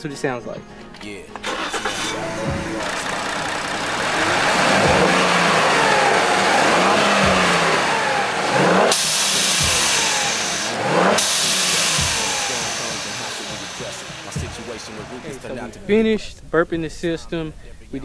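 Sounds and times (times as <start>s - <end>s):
engine revving in throttle blips: 1.4s - 15.6s
blow-off valve whooshing hiss: 8.9s - 14.9s.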